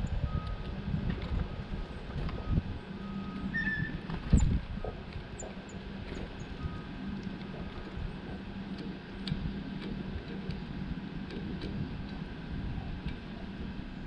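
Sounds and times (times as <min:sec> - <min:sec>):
low mechanical hum: 0:00.0 - 0:14.0
high bird chirps: 0:03.4 - 0:04.0.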